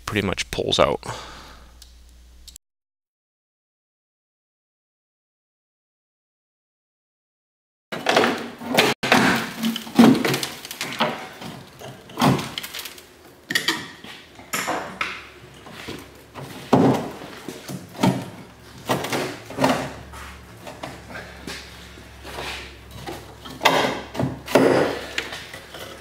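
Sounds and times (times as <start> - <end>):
metal pipe clunking and scraping: 13.5 - 26.0.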